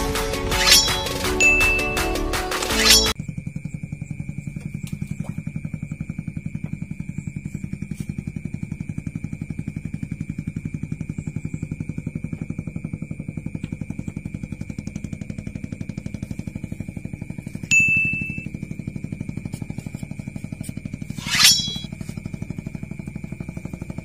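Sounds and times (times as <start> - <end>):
low engine-like chugging: 0.0 - 24.0
faint high whine: 0.5 - 2.0, 2.7 - 24.0
bite bell ding: 0.6 - 2.1, 17.7 - 18.5, 21.2 - 21.9.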